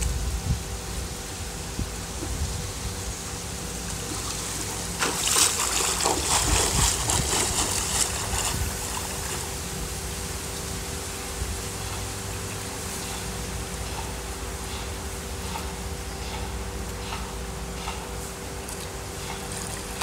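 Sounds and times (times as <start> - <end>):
steady background hiss and hum: 0.0 - 20.0
swimmer splashing flutter kick: 4.0 - 9.9.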